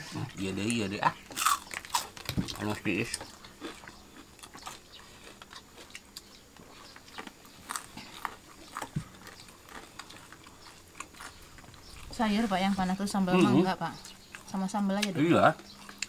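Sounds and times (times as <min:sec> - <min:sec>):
people chewing food: 0:00.0 - 0:16.0.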